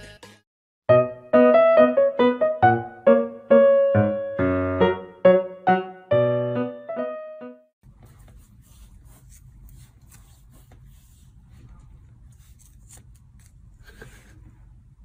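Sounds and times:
piano phrase: 0:00.9 - 0:07.8.

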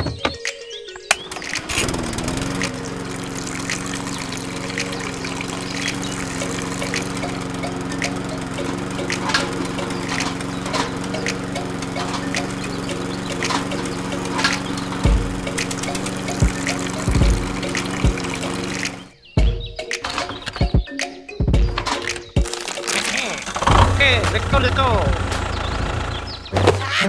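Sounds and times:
small electric motor humming: 0:01.2 - 0:19.1
liquid splashing and trickling: 0:01.3 - 0:19.1, 0:21.9 - 0:23.8.

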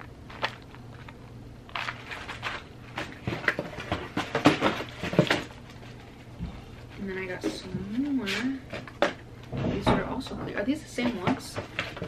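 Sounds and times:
plastic packaging rustling: 0:00.0 - 0:06.3.

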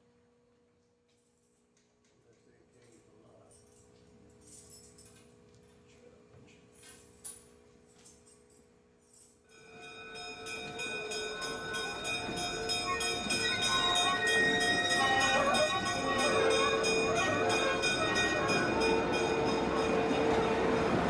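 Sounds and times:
locomotive bell ringing: 0:09.5 - 0:21.0
train rumbling: 0:09.7 - 0:21.0.

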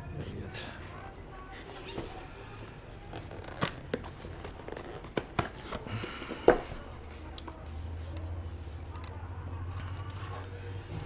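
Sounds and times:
cardboard rustling: 0:03.0 - 0:08.9.

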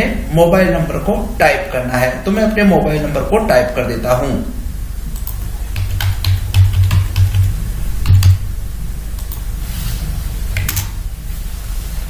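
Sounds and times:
keyboard typing: 0:05.2 - 0:08.4.

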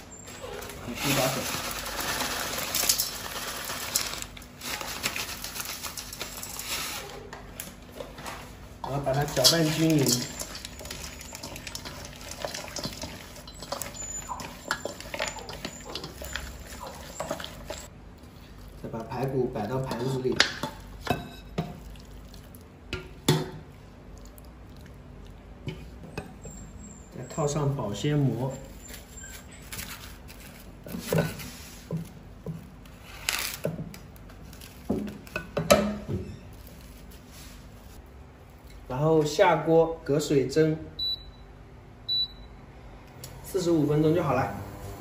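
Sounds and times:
cling film crinkling: 0:00.7 - 0:07.1, 0:09.2 - 0:17.9, 0:32.8 - 0:35.2
wet squelching of hand mixing meat: 0:08.9 - 0:21.0, 0:21.6 - 0:22.8.

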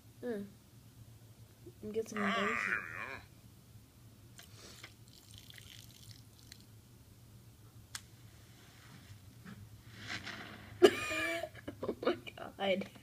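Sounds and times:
grill bursting into flames: 0:09.8 - 0:11.4.

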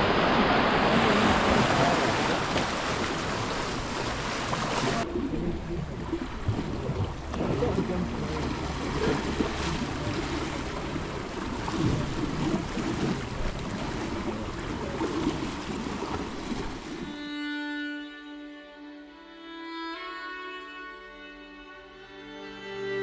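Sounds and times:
tide washing: 0:00.0 - 0:17.4
slow violin music: 0:16.4 - 0:23.0.

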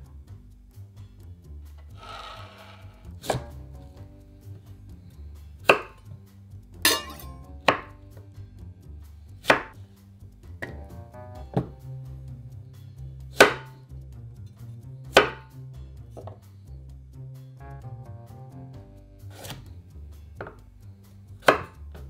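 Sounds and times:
knife knocking on wooden board: 0:11.5 - 0:11.8.

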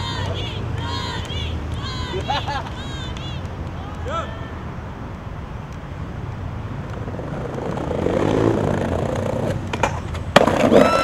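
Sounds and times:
city traffic rumble: 0:00.0 - 0:11.0
skateboard clacks: 0:06.8 - 0:11.0
skateboard rolling over paving: 0:06.8 - 0:11.0.

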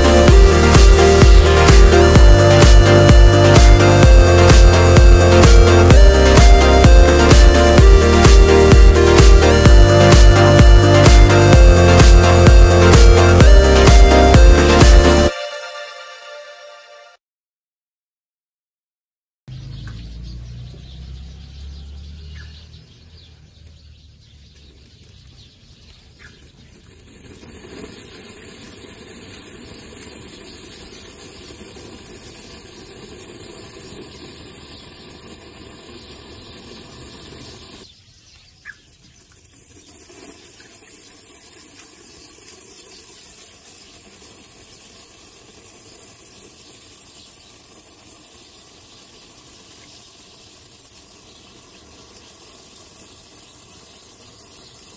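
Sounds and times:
firework fountain hissing: 0:00.0 - 0:15.3, 0:26.6 - 0:37.9, 0:39.4 - 0:54.9.

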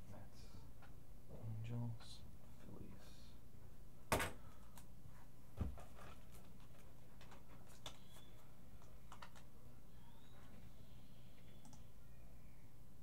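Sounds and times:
low room hum: 0:00.0 - 0:13.0
faint clicks: 0:11.4 - 0:11.9.

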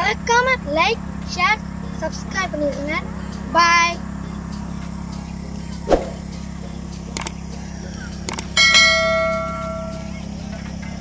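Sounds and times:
low motor-like hum: 0:00.0 - 0:11.0
mouse clicks: 0:07.2 - 0:07.4
bell chime: 0:08.6 - 0:10.0.

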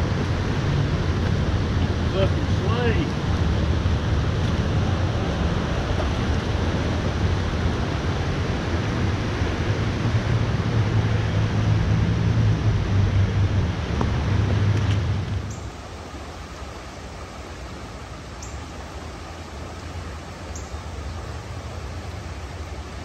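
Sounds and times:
wind buffeting microphone: 0:00.0 - 0:16.0
creek water rushing: 0:00.0 - 0:23.0.

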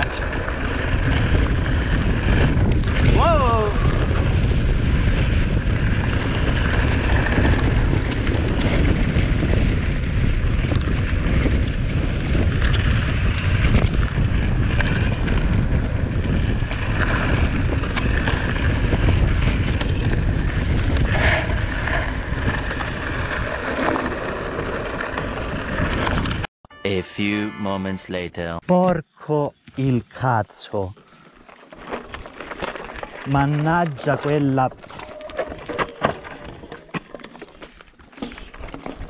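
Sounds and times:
mountain bike rumble and rattle: 0:00.0 - 0:26.5, 0:30.6 - 0:39.0
wind rushing over microphone: 0:00.0 - 0:26.5
bike clicks and knocks: 0:16.3 - 0:26.4, 0:31.4 - 0:39.0.

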